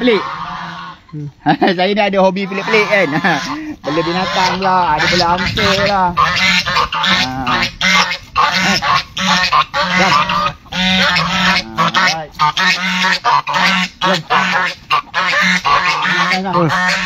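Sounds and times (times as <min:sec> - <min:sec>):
geese honking: 0:00.0 - 0:17.0.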